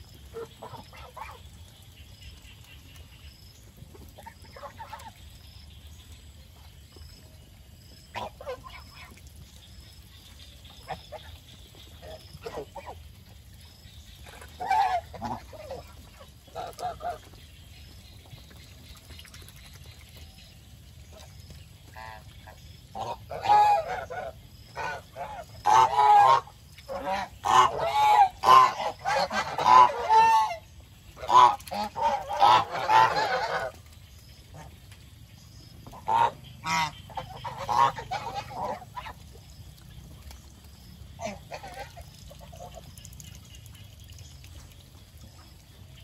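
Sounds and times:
geese honking: 23.0s - 30.6s, 31.2s - 33.8s, 35.9s - 39.1s.

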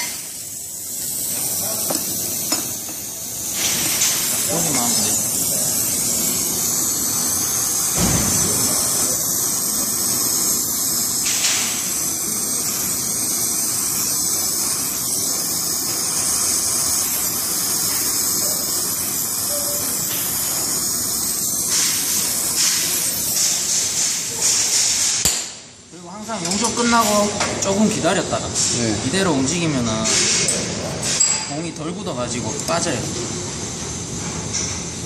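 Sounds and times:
torch flame hissing: 0.0s - 26.0s.

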